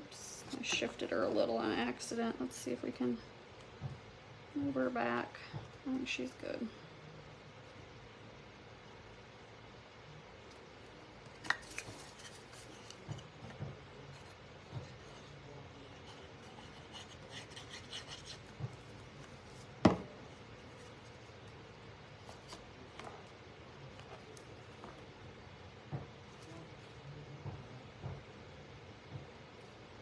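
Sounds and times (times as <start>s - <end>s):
rubbing and scratching: 14.0s - 19.8s.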